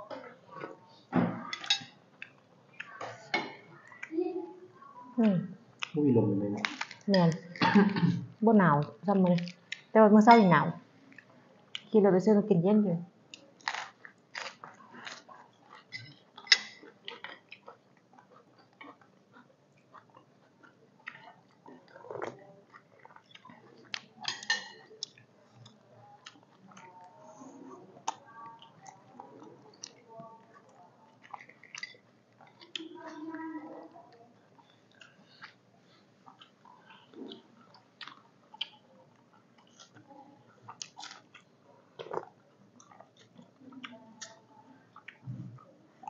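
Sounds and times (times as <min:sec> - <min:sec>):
wet chewing: 0:13.3 - 0:46.0
person chewing and biting: 0:13.6 - 0:15.8, 0:40.7 - 0:43.5.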